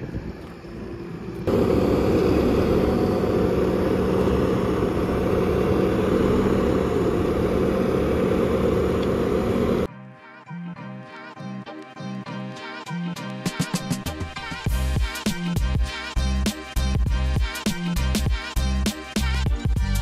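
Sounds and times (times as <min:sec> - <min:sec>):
skid steer engine running: 0:00.0 - 0:09.9.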